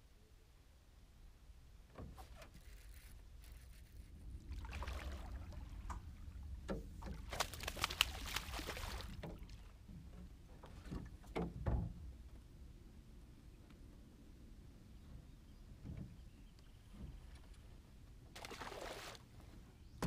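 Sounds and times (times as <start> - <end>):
fish splashing in water: 4.5 - 5.8, 7.1 - 9.4.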